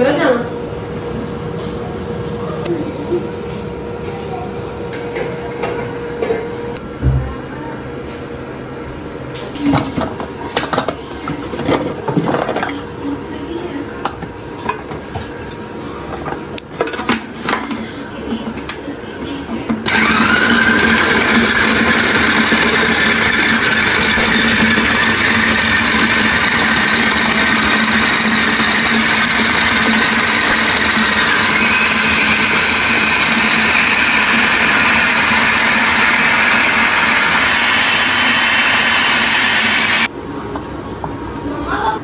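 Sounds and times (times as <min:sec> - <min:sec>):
food processor motor whine: 0:19.9 - 0:40.1.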